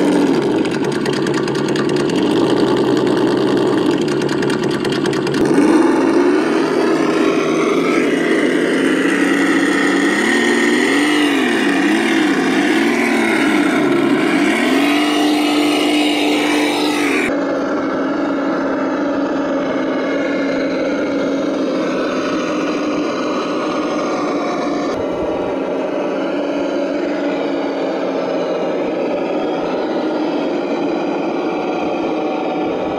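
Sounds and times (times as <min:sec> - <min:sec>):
simulated engine sound: 0:00.0 - 0:32.9.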